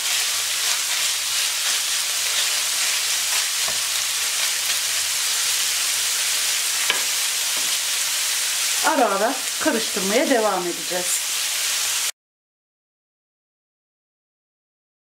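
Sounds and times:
meat sizzling in a frying pan: 0:00.0 - 0:12.1
wooden spoon scraping: 0:00.6 - 0:08.0.

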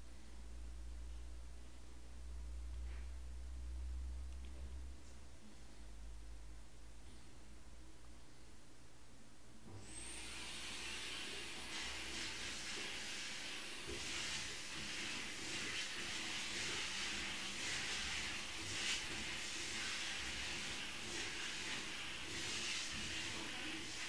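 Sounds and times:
steady hiss: 0:09.9 - 0:24.0.

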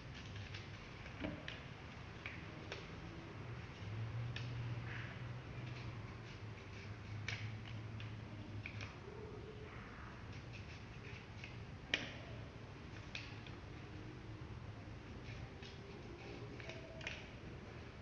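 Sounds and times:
scissors snipping paper: 0:05.5 - 0:09.1, 0:10.3 - 0:13.6, 0:15.0 - 0:17.4.

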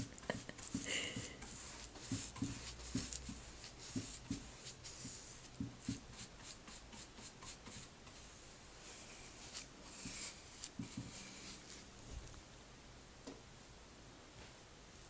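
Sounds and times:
paintbrush scratching on wood: 0:00.0 - 0:12.0.

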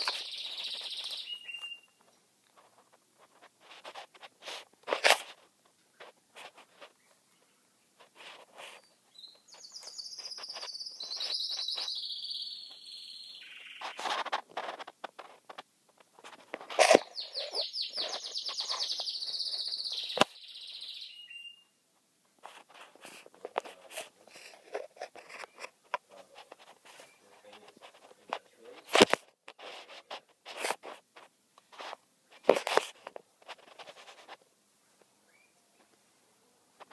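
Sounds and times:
canary trilling song: 0:00.0 - 0:02.3, 0:08.7 - 0:14.2, 0:16.8 - 0:21.8.

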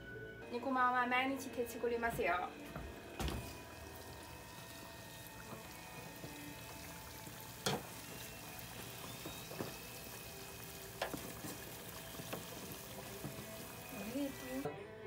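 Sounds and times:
oil sizzling and bubbling: 0:02.8 - 0:14.7.

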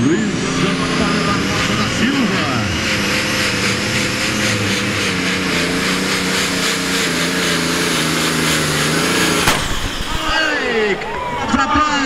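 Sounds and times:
diesel tractor engine under load: 0:00.0 - 0:12.0
sharp crack: 0:08.4 - 0:10.8.

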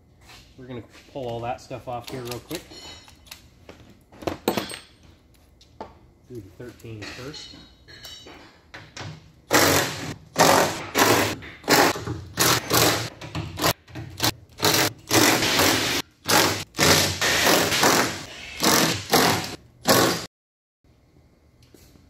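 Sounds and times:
impact wrench bursts: 0:09.5 - 0:20.3.

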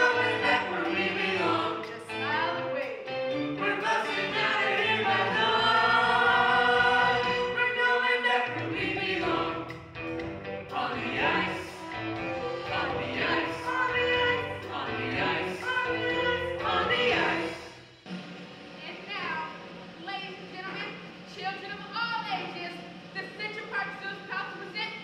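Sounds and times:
stage cast singing together: 0:00.0 - 0:02.7, 0:03.3 - 0:17.9.

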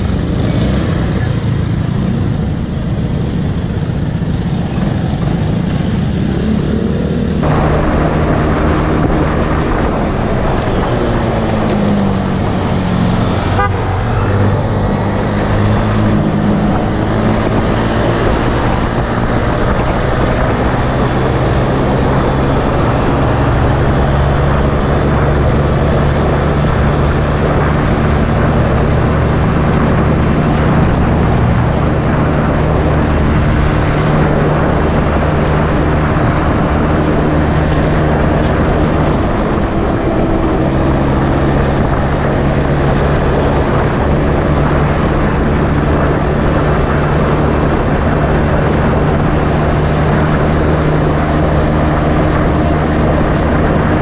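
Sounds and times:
scooter engine running: 0:00.0 - 0:07.5
wind and road noise: 0:00.0 - 0:54.0.

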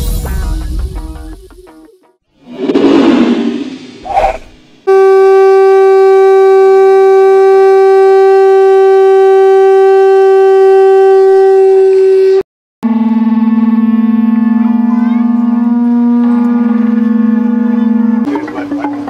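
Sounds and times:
animal horn blown: 0:04.9 - 0:12.4.

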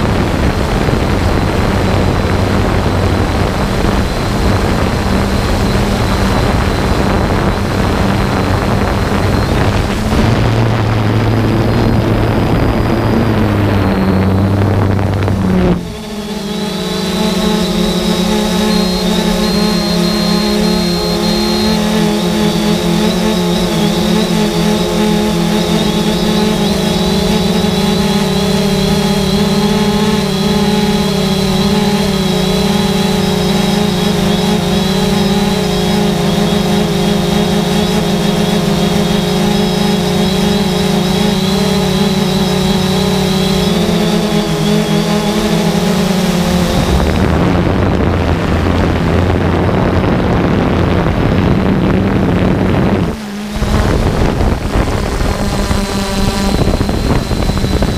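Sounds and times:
even rushing noise: 0:00.0 - 0:57.9
quadcopter propellers humming: 0:00.0 - 0:57.9
thin high whine: 0:00.0 - 0:57.9.

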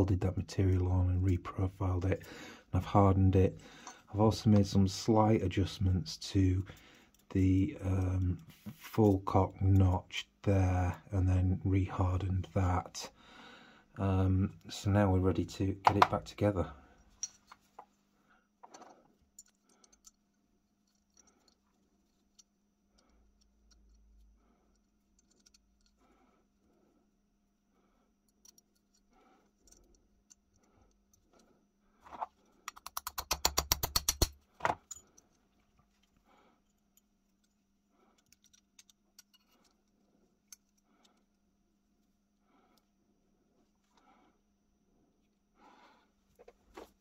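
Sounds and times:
small metal parts clinking: 0:17.0 - 0:18.0, 0:18.6 - 0:26.0, 0:28.2 - 0:31.4, 0:32.0 - 0:41.3
rapid metallic clicks: 0:32.6 - 0:35.0.

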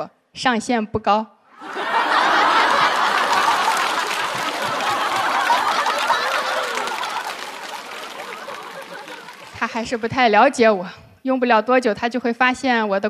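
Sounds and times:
audience applauding: 0:01.6 - 0:10.1
audience laughing: 0:01.6 - 0:10.1.

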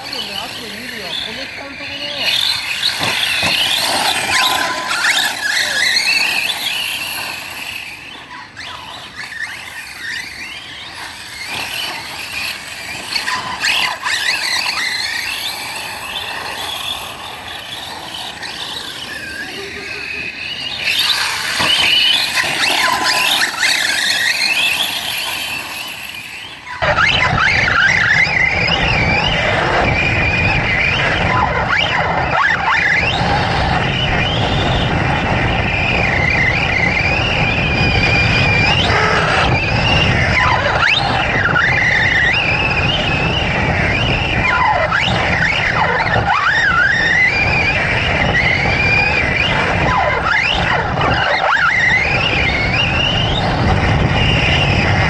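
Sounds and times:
steady deeper noise: 0:00.0 - 0:30.1
rc truck motors whining: 0:00.0 - 0:55.0.

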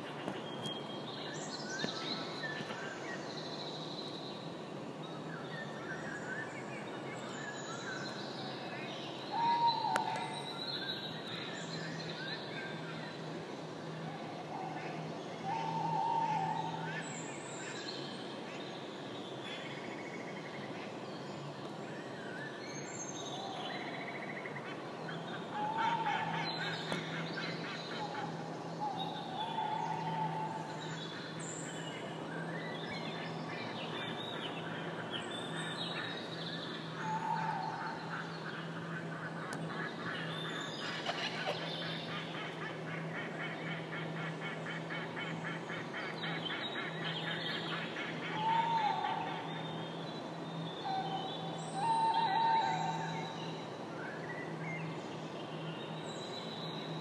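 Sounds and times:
birds chattering: 0:24.5 - 0:57.0.

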